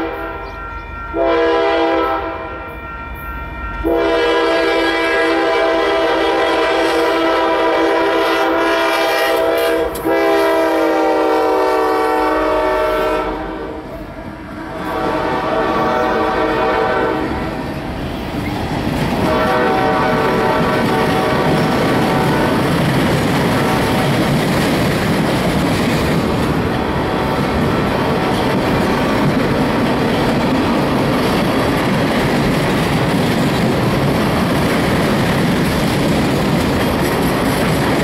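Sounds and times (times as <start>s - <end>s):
locomotive air horn: 0.0s - 14.0s, 14.6s - 17.6s, 19.2s - 22.7s
train wheels clacking on rails: 17.5s - 38.0s.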